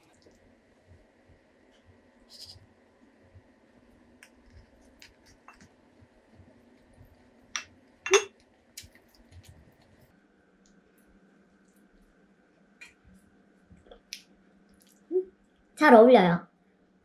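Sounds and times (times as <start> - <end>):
utensils clinking on ceramic bowl: 8.1 - 8.3.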